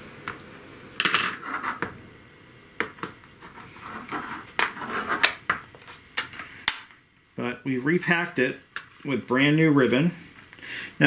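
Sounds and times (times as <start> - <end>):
plastic scrapes: 3.4 - 5.4.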